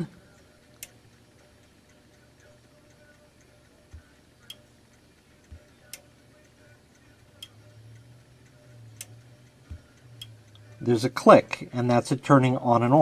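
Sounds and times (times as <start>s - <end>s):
smart socket relay clicks: 0.7s - 1.0s, 8.9s - 12.1s
dull taps: 9.6s - 9.9s.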